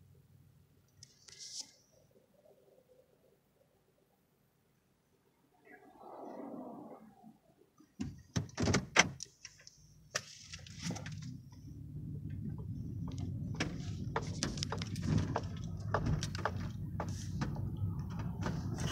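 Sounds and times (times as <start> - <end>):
car engine rumble inside cabin: 10.3 - 18.9.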